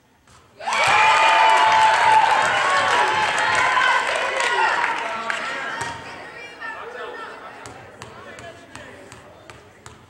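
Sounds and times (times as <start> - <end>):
long shout: 0.6 - 5.0
crowd cheering and shouting: 0.6 - 6.7
clapping: 0.7 - 5.5.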